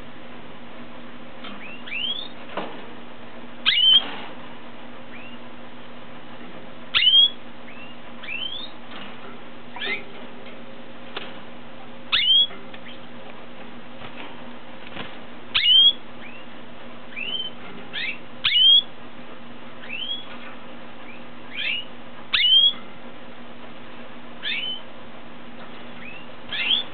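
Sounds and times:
steady low hum: 0:00.0 - 0:26.9
canary chirping: 0:01.5 - 0:02.4, 0:03.6 - 0:04.1, 0:05.0 - 0:05.5, 0:06.9 - 0:08.8, 0:09.7 - 0:10.1, 0:12.1 - 0:13.1, 0:15.5 - 0:18.9, 0:19.8 - 0:20.3, 0:21.0 - 0:22.9, 0:24.4 - 0:24.9, 0:25.8 - 0:26.9.

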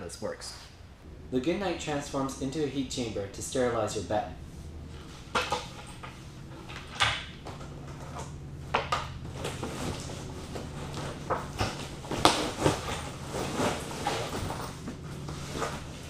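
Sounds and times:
steady low hum: 0:00.0 - 0:16.0
fabric rustling: 0:09.3 - 0:16.0.

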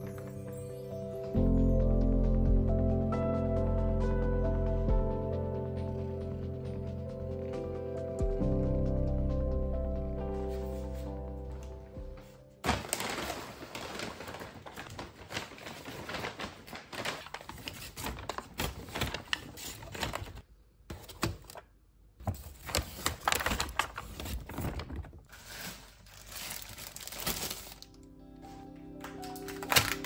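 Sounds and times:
paper bags rustling: 0:10.5 - 0:21.6, 0:22.2 - 0:30.0
packaging crinkling: 0:12.6 - 0:20.4, 0:22.2 - 0:28.0, 0:29.0 - 0:30.0.

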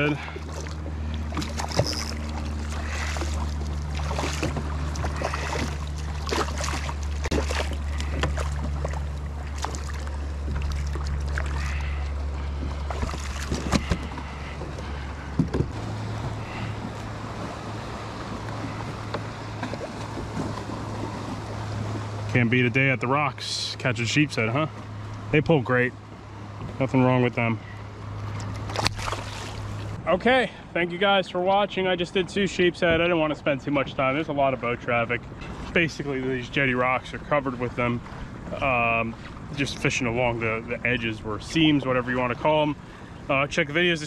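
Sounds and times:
fish thrashing and splashing: 0:00.0 - 0:22.2, 0:28.2 - 0:30.0
steady low hum: 0:00.0 - 0:43.4.

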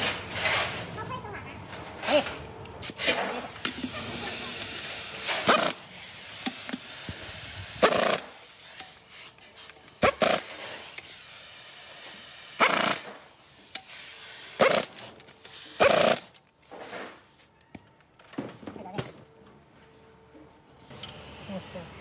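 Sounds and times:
pneumatic impact wrench bursts: 0:02.8 - 0:17.4.

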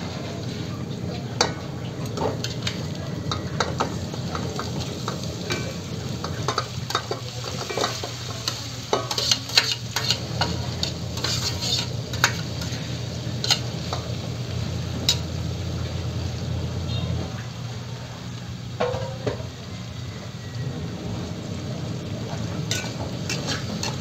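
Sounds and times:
chicken sizzling in hot oil: 0:00.0 - 0:24.0
metal utensil clinking and scraping: 0:01.4 - 0:14.3, 0:15.0 - 0:15.4, 0:22.6 - 0:24.0.

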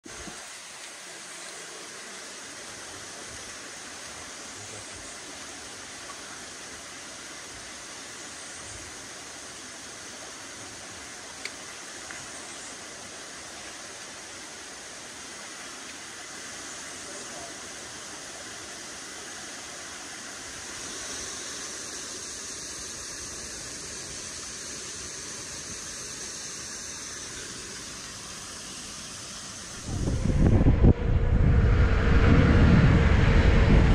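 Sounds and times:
ocean surf rushing: 0:29.6 - 0:33.9.

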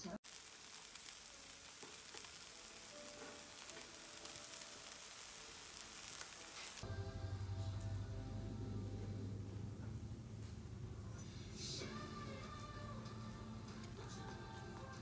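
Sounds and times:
pancakes sizzling on griddle: 0:00.2 - 0:09.4
steady low hum: 0:06.8 - 0:14.8.

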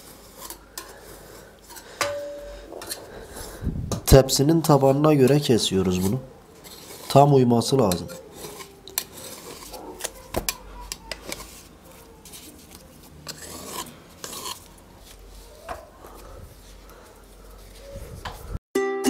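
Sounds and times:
knife rasping through pastry sheets: 0:05.2 - 0:17.9.

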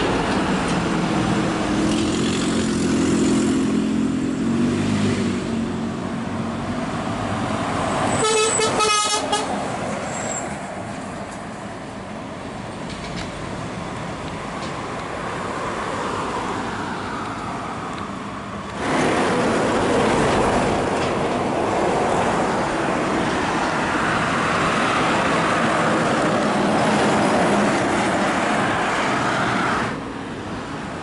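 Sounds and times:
tyre and road noise: 0:00.0 - 0:31.0
truck horn toots: 0:08.1 - 0:09.6
truck diesel engine passing: 0:13.4 - 0:31.0.

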